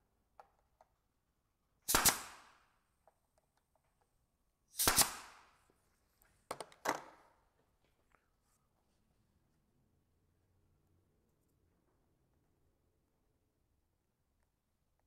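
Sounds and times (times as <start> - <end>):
nail gun firing into wood: 1.9 - 2.7, 4.7 - 5.6.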